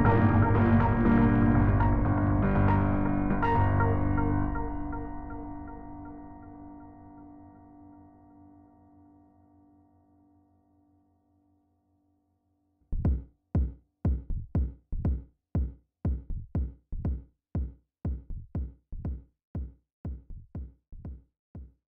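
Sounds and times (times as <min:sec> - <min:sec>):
techno music: 0:00.0 - 0:06.8
drum machine kick thumps: 0:13.0 - 0:21.8.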